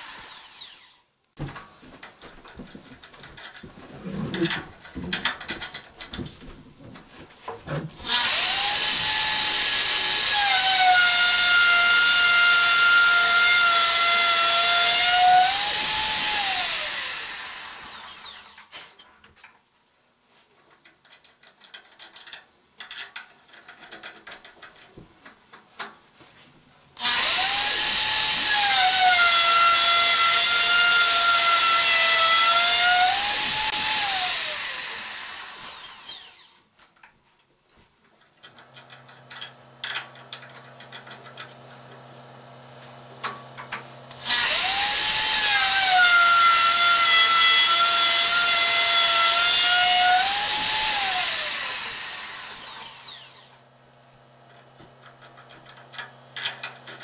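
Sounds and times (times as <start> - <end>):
wood router whining: 0.0 - 1.1, 7.8 - 18.8, 27.0 - 36.6, 44.0 - 53.7.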